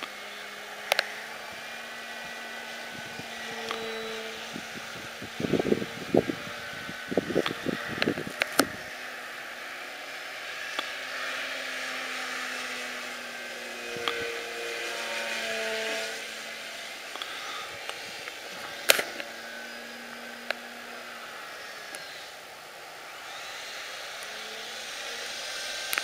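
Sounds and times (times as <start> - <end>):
model plane electric motor whining: 0.0 - 26.0
sharp click: 17.1 - 19.3.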